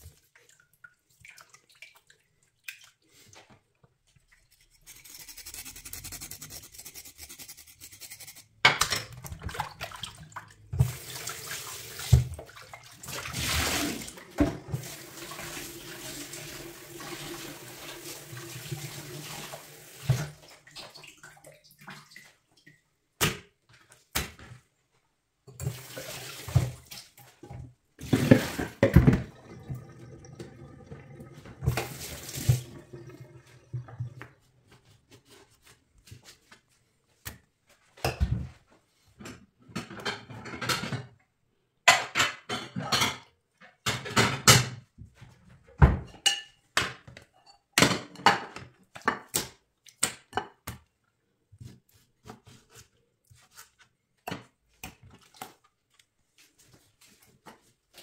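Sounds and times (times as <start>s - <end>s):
knife scraping on cutting board: 4.6s - 8.5s
tap water splashing into sink: 8.9s - 22.3s, 25.6s - 34.4s.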